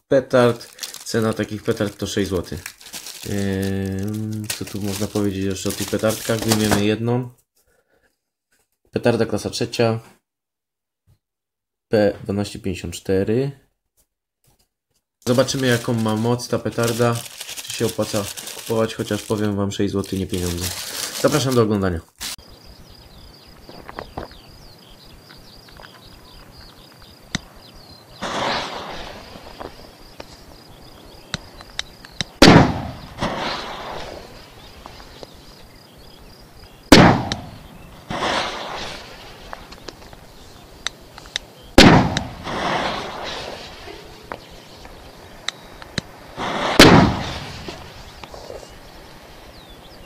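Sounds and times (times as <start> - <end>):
firecracker bang: 28.2 - 29.6, 32.4 - 34.5, 36.9 - 39.6, 41.8 - 44.2, 46.4 - 48.1
faint clicks: 44.3 - 46.1.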